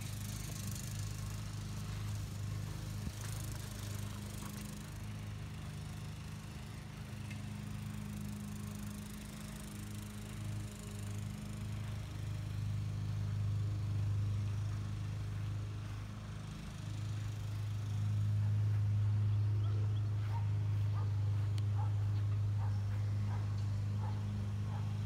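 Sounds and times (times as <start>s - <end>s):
low mechanical hum: 0.0s - 25.0s.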